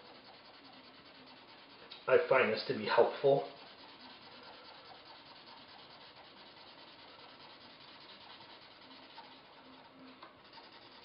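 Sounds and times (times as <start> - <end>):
marker scrubbing on paper: 0.0 - 11.0.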